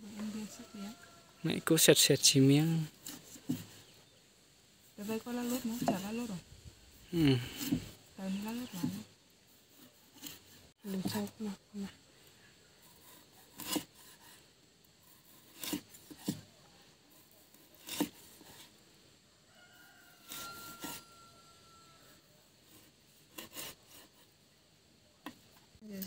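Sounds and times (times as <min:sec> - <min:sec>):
knife cutting on wooden board: 0:13.0 - 0:14.4, 0:15.1 - 0:16.5, 0:17.4 - 0:18.7.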